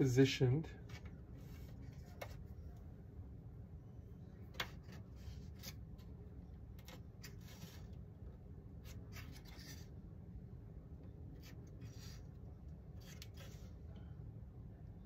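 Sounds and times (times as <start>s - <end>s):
light scratching and rubbing: 6.9s - 8.0s, 8.8s - 9.9s, 11.4s - 12.4s, 13.0s - 13.8s.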